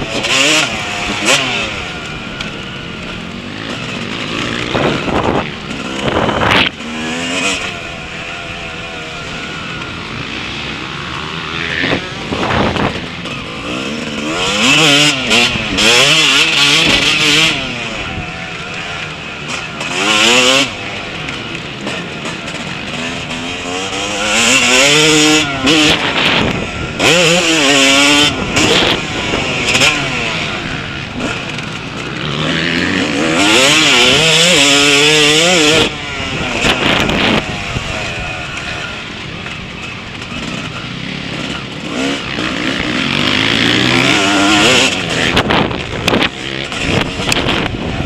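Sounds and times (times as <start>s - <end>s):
motocross bike engine revving: 0.0s - 48.0s.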